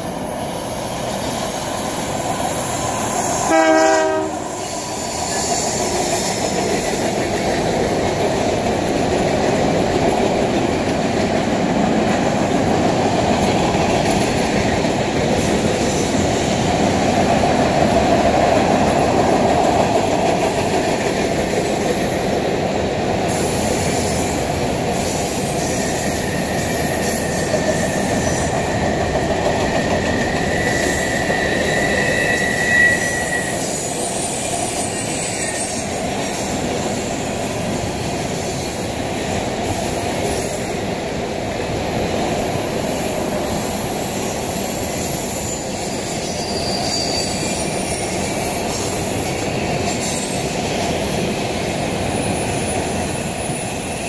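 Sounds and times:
train wheels rumbling on rail: 0:00.0 - 0:54.0
high wheel squeal: 0:00.1 - 0:07.9, 0:23.3 - 0:40.9, 0:42.0 - 0:54.0.

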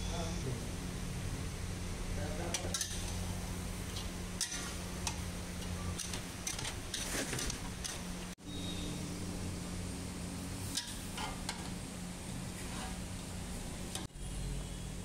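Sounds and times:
steady low hum: 0:00.0 - 0:15.0
metal spatula scraping iron pan: 0:10.7 - 0:11.6, 0:12.5 - 0:13.2.

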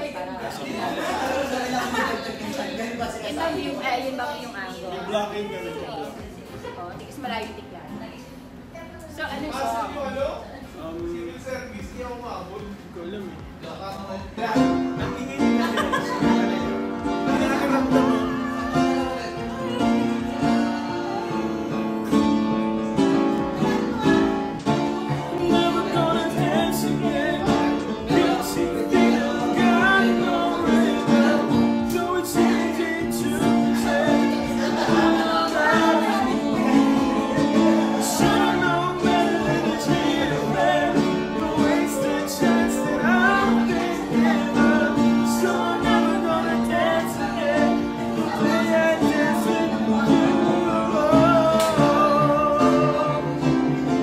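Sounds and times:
piano: 0:14.2 - 0:54.0
strummed acoustic guitar: 0:14.5 - 0:54.0
man singing a slow song: 0:25.0 - 0:53.6.

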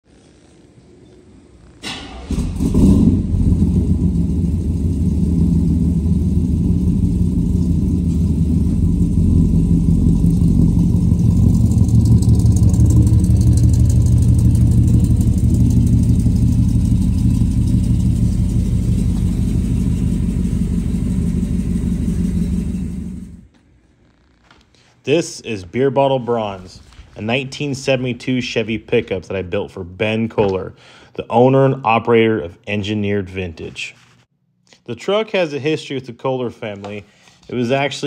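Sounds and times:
truck engine exhaust rumble: 0:02.2 - 0:23.5.

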